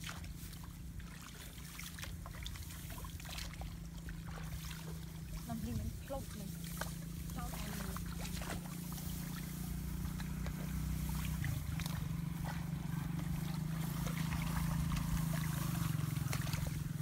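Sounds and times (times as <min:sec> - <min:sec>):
hands splashing in muddy water: 0:00.0 - 0:17.0
low engine drone: 0:00.0 - 0:17.0.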